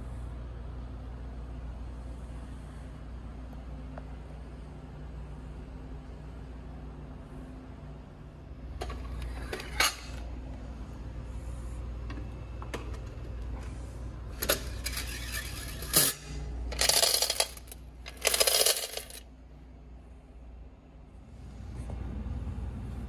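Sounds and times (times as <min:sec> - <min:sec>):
coins rattling in metal box: 0:14.4 - 0:19.2
coins jingling: 0:16.7 - 0:19.2
machine parts clicking: 0:16.7 - 0:19.2.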